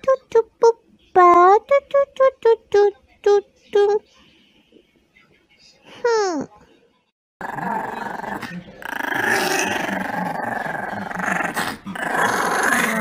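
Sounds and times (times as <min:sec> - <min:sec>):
dog growling: 0:07.4 - 0:13.0.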